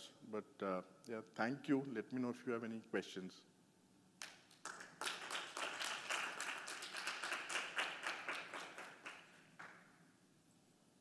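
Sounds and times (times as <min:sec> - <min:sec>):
audience applauding: 0:04.6 - 0:09.8.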